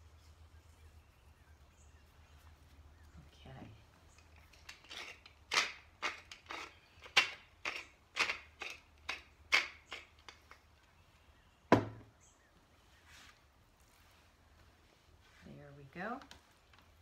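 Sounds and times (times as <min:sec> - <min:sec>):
pepper mill grinding: 0:04.1 - 0:10.6.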